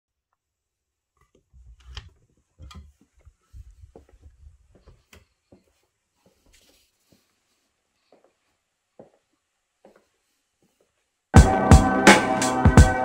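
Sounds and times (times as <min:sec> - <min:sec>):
dull thuds of footsteps: 0:03.0 - 0:07.3.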